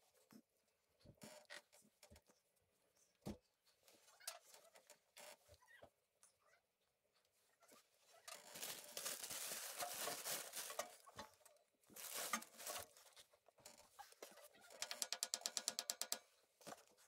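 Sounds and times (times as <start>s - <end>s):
hands and tools rustling and scraping: 8.2s - 17.0s.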